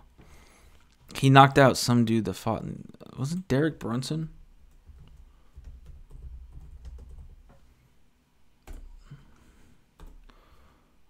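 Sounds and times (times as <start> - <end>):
laptop keyboard typing: 4.7 - 7.6.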